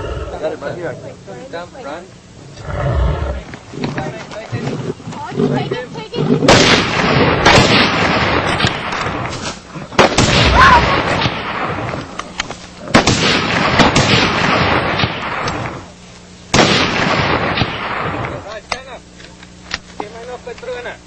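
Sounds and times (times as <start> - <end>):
loud gunshots with rumble: 6.4 - 12.0, 12.9 - 15.8, 16.5 - 18.4.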